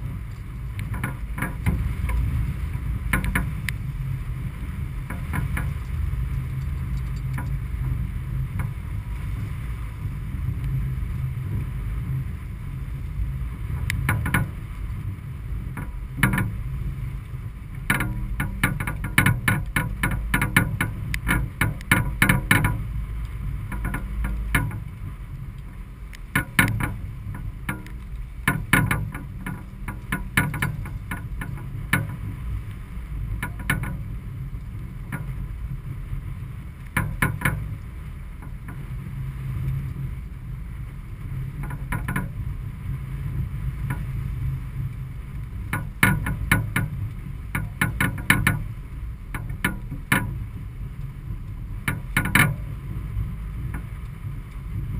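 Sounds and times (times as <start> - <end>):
sharp knocks and rattles: 0.0 - 9.0, 13.6 - 17.0, 17.7 - 35.8, 36.8 - 39.0, 41.4 - 42.6, 43.3 - 50.7, 51.7 - 53.0, 53.6 - 54.1
wind and water rushing along hull: 0.0 - 54.9.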